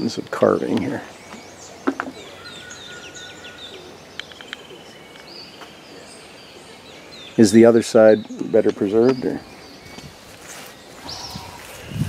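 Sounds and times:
birds chirping and whistling: 0:00.0 - 0:12.0
bird trilling: 0:01.1 - 0:10.0
sharp clicks: 0:04.2 - 0:05.3.

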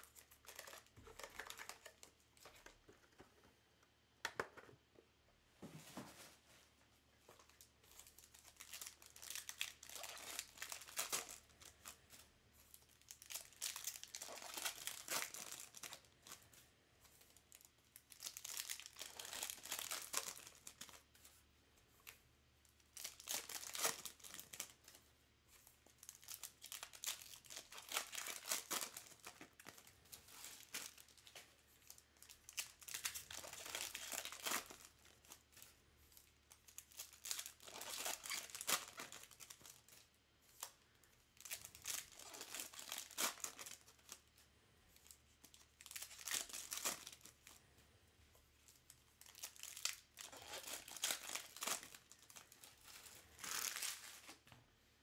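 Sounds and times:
card pack wrappers crackling: 0:00.0 - 0:02.8, 0:07.5 - 0:16.4, 0:17.3 - 0:21.0, 0:22.9 - 0:25.0, 0:25.8 - 0:40.7, 0:41.4 - 0:44.3, 0:45.0 - 0:47.6, 0:48.7 - 0:54.4.

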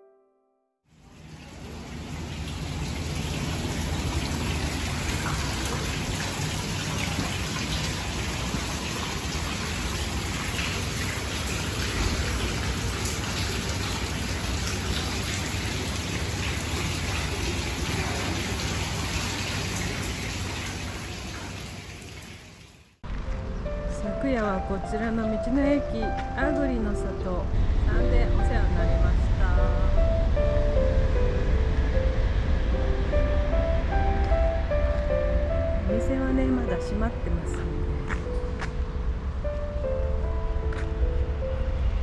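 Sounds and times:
water splashing in fountain: 0:00.9 - 0:23.0.

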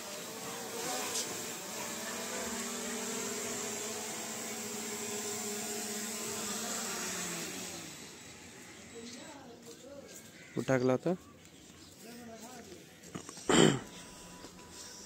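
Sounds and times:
drone propellers humming: 0:00.0 - 0:09.0.

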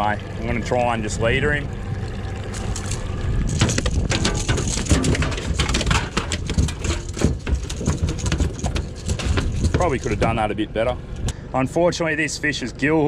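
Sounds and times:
steady low rumble: 0:00.0 - 0:13.0
fish thrashing on metal deck: 0:02.5 - 0:10.6.

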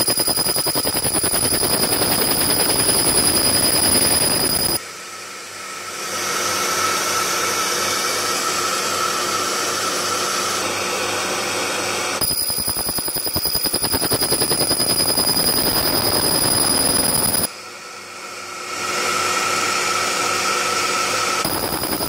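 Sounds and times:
laser cleaner crackling buzz: 0:00.0 - 0:04.8, 0:12.2 - 0:17.5, 0:21.4 - 0:22.0
machine whir: 0:00.0 - 0:04.8, 0:12.2 - 0:17.5, 0:21.4 - 0:22.0.

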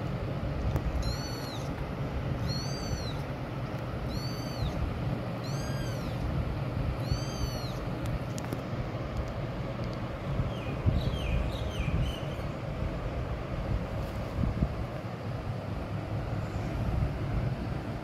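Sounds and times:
kitten mewing: 0:01.0 - 0:01.7, 0:02.4 - 0:03.2, 0:04.1 - 0:04.8, 0:05.4 - 0:06.2, 0:07.0 - 0:07.8.

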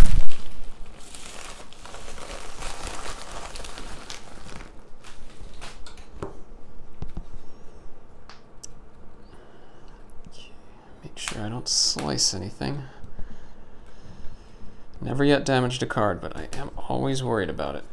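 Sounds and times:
packaging rustling and crinkling: 0:00.0 - 0:06.2.

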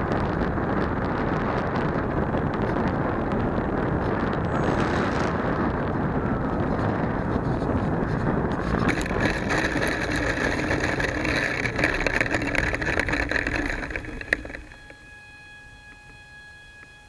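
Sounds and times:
wheels rattling over dirt and grass: 0:00.0 - 0:15.1
electric model plane motor: 0:00.0 - 0:17.0
wind: 0:00.0 - 0:17.0
faint high whine: 0:03.6 - 0:17.0.

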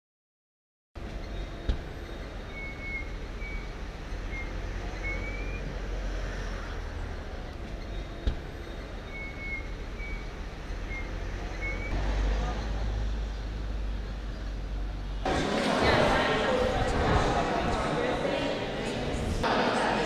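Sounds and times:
low traffic rumble: 0:01.0 - 0:20.0.

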